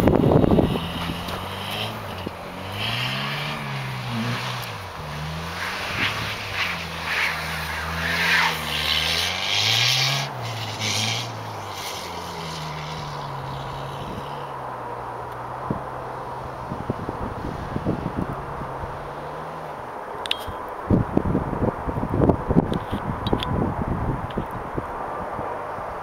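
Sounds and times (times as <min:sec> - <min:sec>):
car engine revving: 0:00.0 - 0:19.9.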